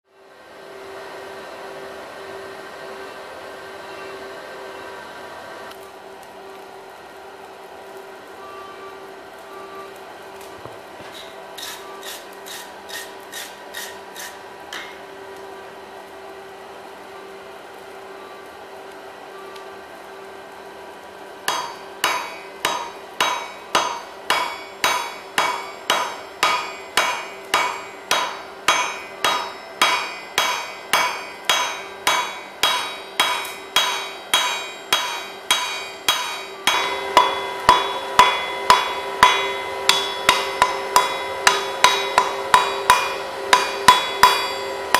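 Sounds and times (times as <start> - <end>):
faint steady hum: 0.1 - 44.9
hammer blows on anvil: 21.5 - 44.9.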